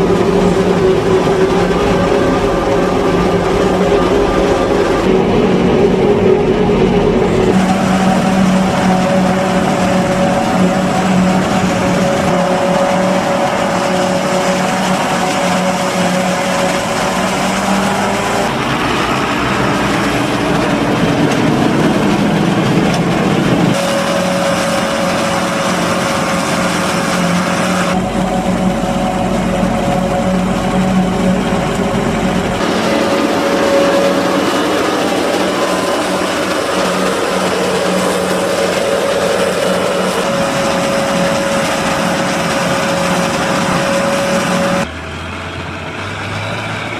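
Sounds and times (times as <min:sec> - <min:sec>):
tractor engine: 0:00.0 - 0:46.9
forage harvester chopping: 0:07.4 - 0:44.9.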